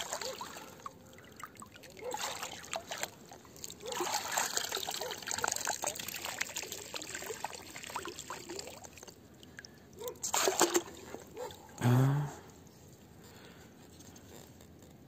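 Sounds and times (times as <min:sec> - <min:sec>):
water drips and plops: 0:00.0 - 0:11.8
water trickling and bubbling: 0:00.0 - 0:11.8
water splash: 0:10.2 - 0:11.2.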